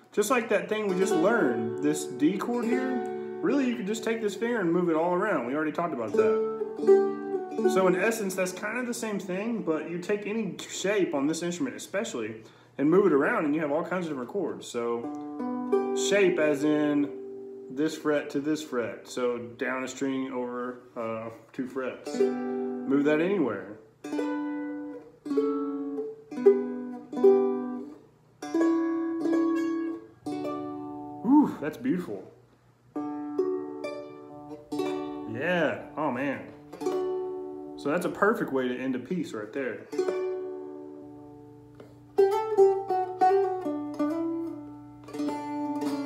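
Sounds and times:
dulcimer chords strummed: 0:00.2 - 0:10.5, 0:20.6 - 0:32.0, 0:32.9 - 0:41.6, 0:42.2 - 0:46.0.

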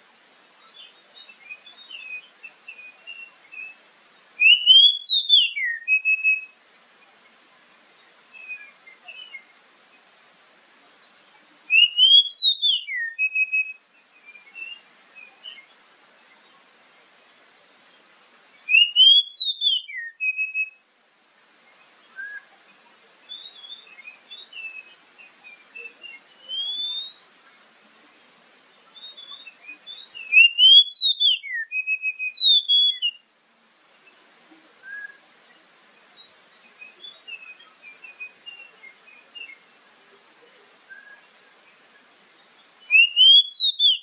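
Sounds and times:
soft bird chirps: 0:00.0 - 0:44.0
bird singing whistled phrases: 0:00.7 - 0:03.8, 0:04.4 - 0:06.6, 0:08.3 - 0:09.5, 0:11.7 - 0:15.7, 0:18.7 - 0:20.8, 0:22.1 - 0:22.5, 0:23.3 - 0:27.2, 0:28.9 - 0:33.2, 0:34.8 - 0:35.2, 0:36.2 - 0:39.6, 0:40.9 - 0:41.3, 0:42.8 - 0:44.0.

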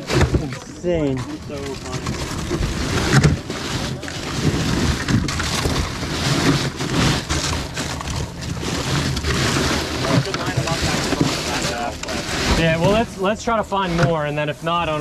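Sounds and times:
boat noise: 0:00.0 - 0:15.0
ice bags crinkling: 0:00.0 - 0:15.0.

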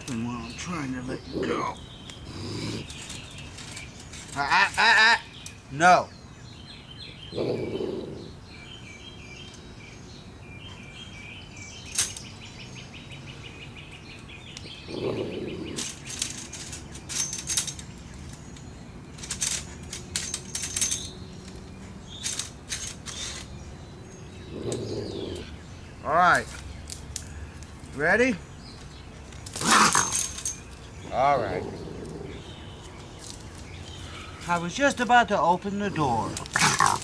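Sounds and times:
bird chirps: 0:00.0 - 0:37.0
wire trap rattling and clicking: 0:02.8 - 0:05.6, 0:11.8 - 0:12.3, 0:15.6 - 0:23.5, 0:29.3 - 0:30.9, 0:36.2 - 0:37.0.

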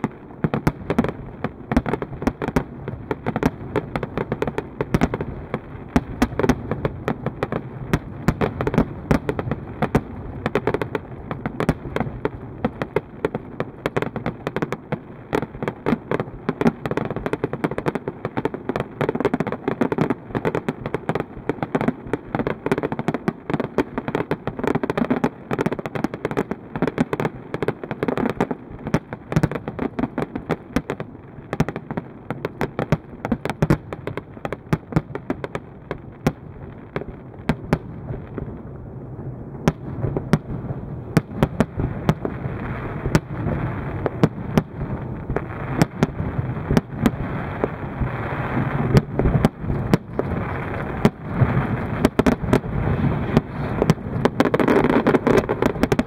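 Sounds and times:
firework shells bursting: 0:48.8 - 0:56.0.

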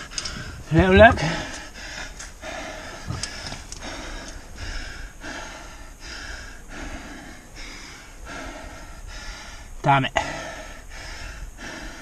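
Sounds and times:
person breathing hard: 0:00.0 - 0:12.0.

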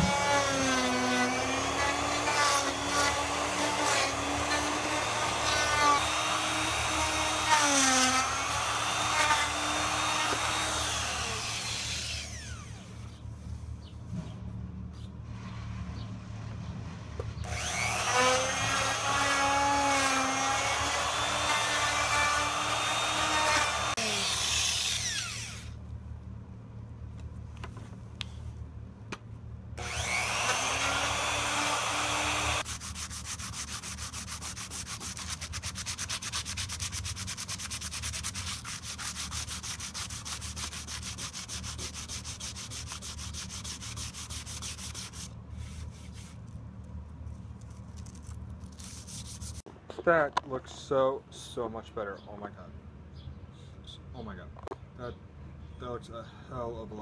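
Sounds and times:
electric router motor: 0:00.0 - 0:13.0, 0:17.4 - 0:25.7, 0:29.8 - 0:32.6
gloved hand rubbing wood: 0:32.6 - 0:46.6, 0:47.5 - 0:49.7.

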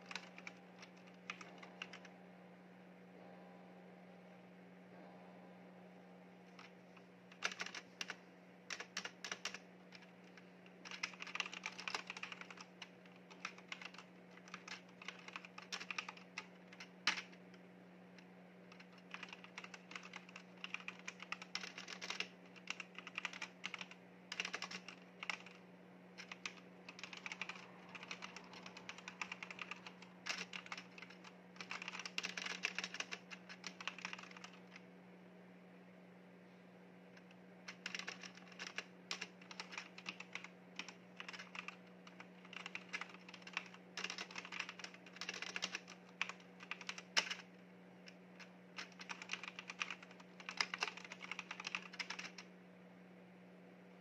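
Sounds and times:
faint steady hum: 0:00.0 - 0:54.0
mechanical keyboard key clicks: 0:42.5 - 0:47.4.

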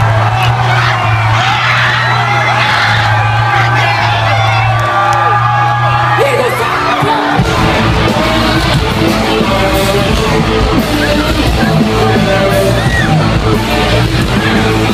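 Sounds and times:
electric guitar: 0:04.3 - 0:14.9
live rock band playing: 0:05.9 - 0:14.9
person singing: 0:06.2 - 0:14.9.

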